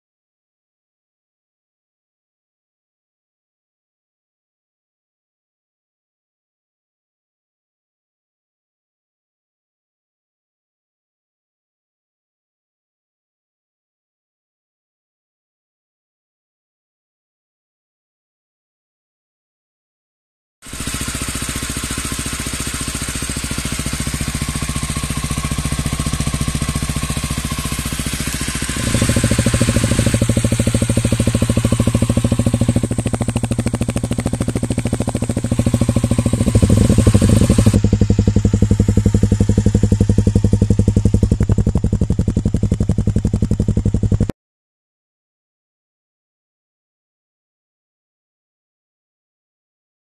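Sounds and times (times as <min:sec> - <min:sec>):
motorcycle engine idling: 0:20.7 - 0:44.3.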